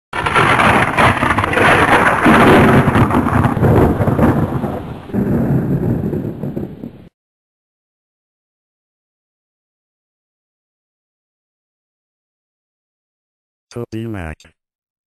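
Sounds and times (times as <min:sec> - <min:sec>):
heavy rain: 0:00.2 - 0:07.1
thunder rumbling: 0:00.2 - 0:07.1.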